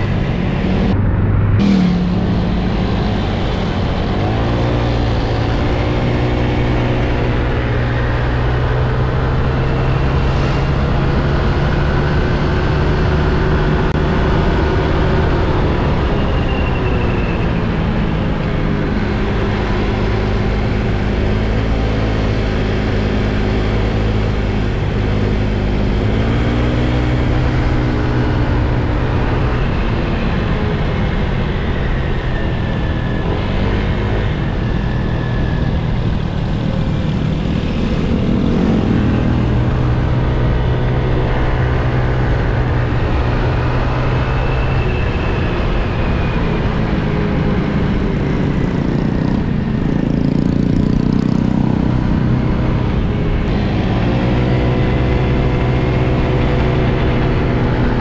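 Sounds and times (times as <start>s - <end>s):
wind and road noise: 0.0s - 58.0s.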